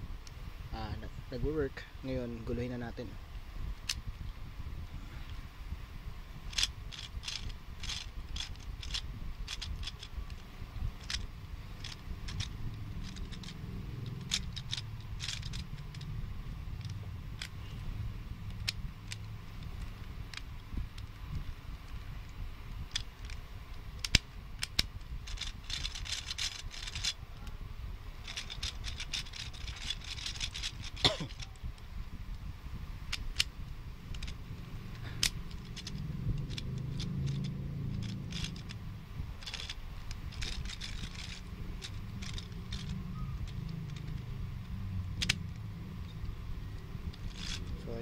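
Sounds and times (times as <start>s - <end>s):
low steady hum: 0.0s - 48.0s
steady low rumble: 0.0s - 48.0s
plastic puzzle cube clicking: 6.5s - 16.1s, 16.7s - 17.6s, 18.4s - 22.0s, 22.7s - 23.4s, 24.0s - 27.2s, 28.2s - 31.5s, 33.1s - 33.5s, 34.1s - 38.8s, 39.4s - 48.0s.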